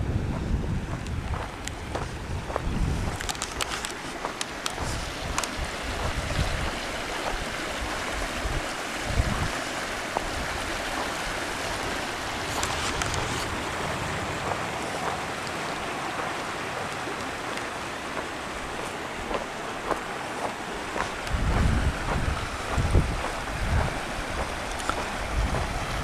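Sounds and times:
creek rushing over rocks: 0.0 - 26.0
low thumps: 20.9 - 24.6.

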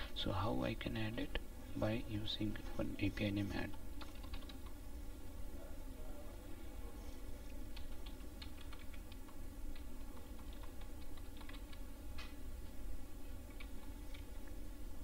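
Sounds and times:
low background hum: 0.0 - 15.0
keyboard typing: 3.6 - 4.8, 7.7 - 11.8, 13.5 - 14.4.

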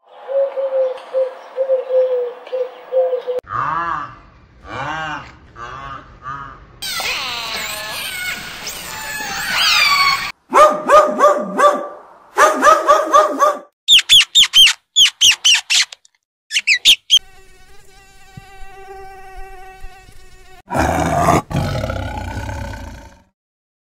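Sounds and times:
orca whistles and squeals: 6.8 - 10.3, 13.9 - 15.9, 16.5 - 17.2
mouse squeaking: 13.9 - 17.2
short repeated pitched calls: 13.9 - 17.2
tiger roaring: 20.7 - 23.3.

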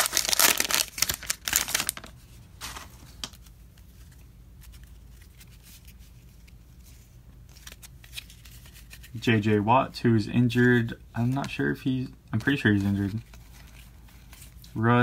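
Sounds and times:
foil wrapper crinkling and tearing: 0.0 - 3.4
cards being handled: 0.0 - 9.2, 10.5 - 15.0.

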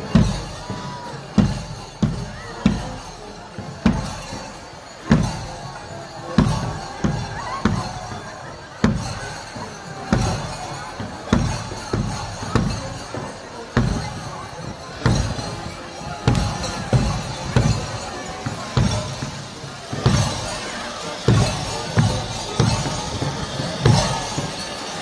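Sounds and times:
crowd murmur: 0.0 - 25.0
bass drum beats: 13.8 - 25.0.

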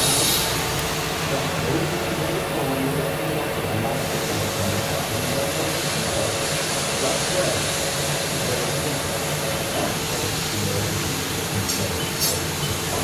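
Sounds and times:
high hiss: 0.0 - 0.6
machine hum and whir: 0.0 - 13.0.

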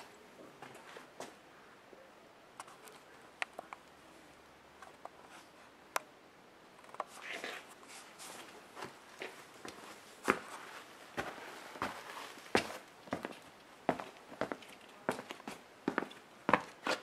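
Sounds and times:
footsteps on concrete: 8.2 - 17.0.

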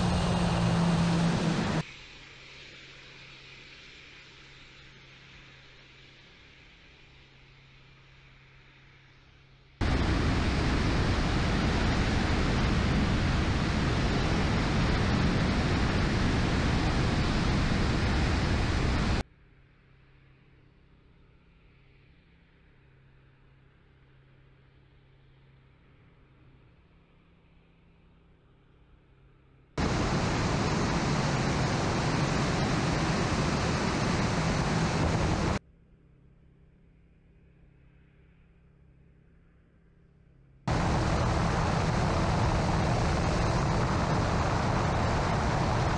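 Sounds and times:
electric fans and rushing airflow: 0.0 - 1.9, 9.8 - 19.2, 29.8 - 35.6, 40.7 - 45.9.

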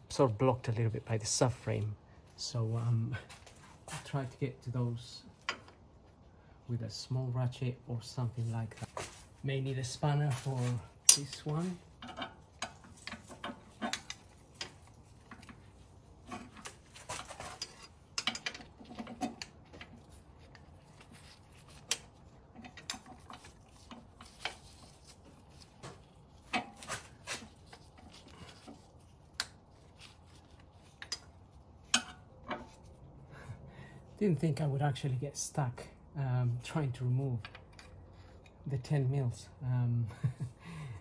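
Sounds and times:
metal spanner clinking on bolts: 11.0 - 15.6, 16.2 - 20.1, 30.9 - 32.8.

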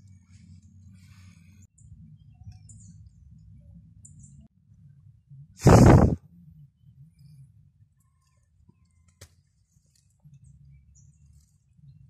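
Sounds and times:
loud burst of noise: 5.6 - 6.2.

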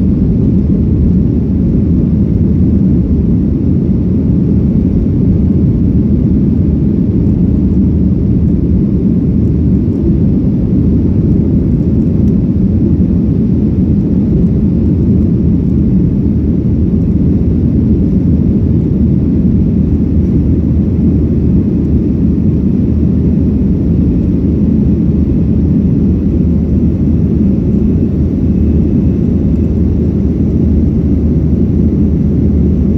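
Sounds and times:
jet engines low rumble: 0.0 - 32.9.

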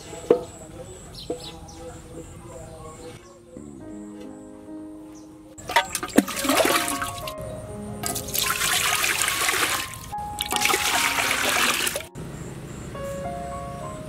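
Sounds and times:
water pouring into metal pot: 5.6 - 7.4, 8.0 - 12.1.

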